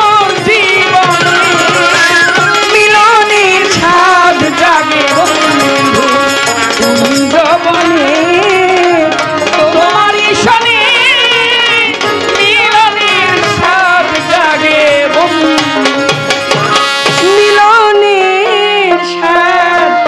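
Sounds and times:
tabla drums: 0.0 - 20.0
ornamented wavering melody: 1.0 - 3.5.

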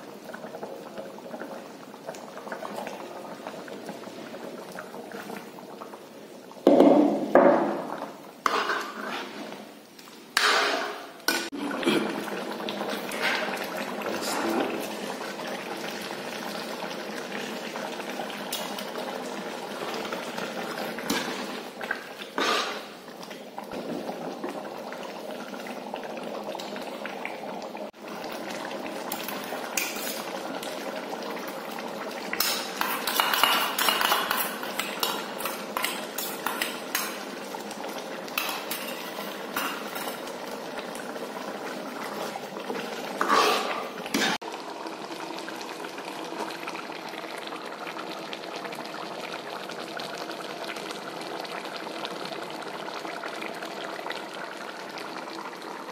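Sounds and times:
curry bubbling in a wok: 0.0 - 55.9
metal ladle scraping a pan: 8.4 - 9.6, 10.4 - 11.4, 22.4 - 22.9, 29.8 - 30.4, 32.4 - 37.2, 38.4 - 40.2, 43.1 - 44.4.

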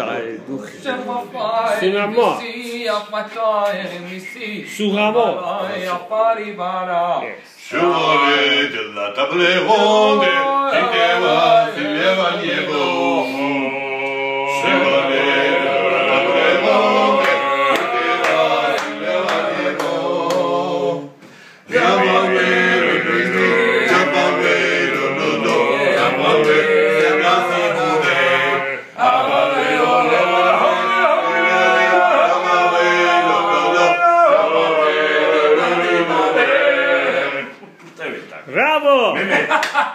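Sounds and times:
men singing a cappella: 7.5 - 37.8.

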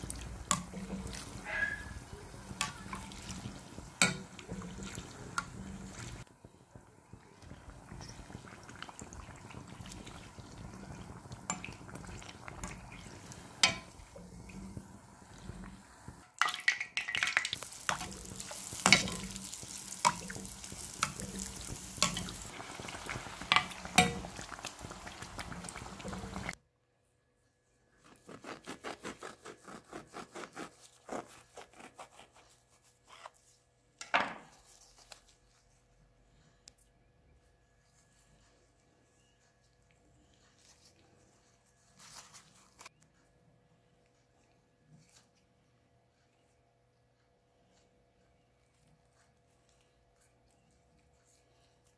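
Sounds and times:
dough sizzling in oil: 0.0 - 26.6.

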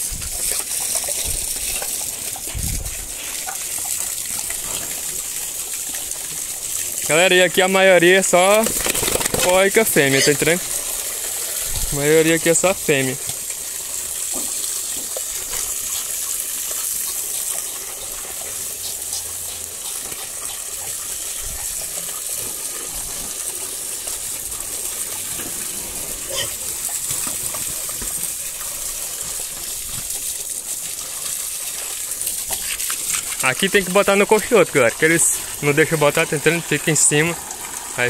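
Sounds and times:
liquid gushing from hose: 0.0 - 38.0
liquid splashing into trough: 7.8 - 12.4.

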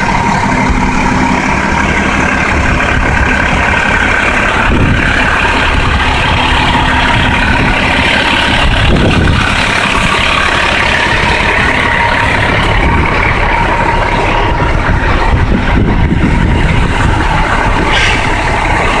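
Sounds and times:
diesel engine idling: 0.0 - 19.0.

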